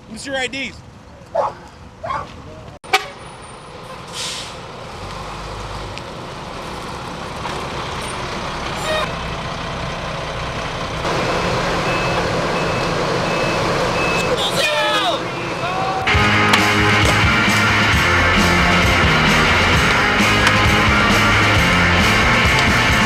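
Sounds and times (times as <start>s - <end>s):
school bus diesel engine running: 2.9s - 23.0s
short hiss: 4.1s - 4.6s.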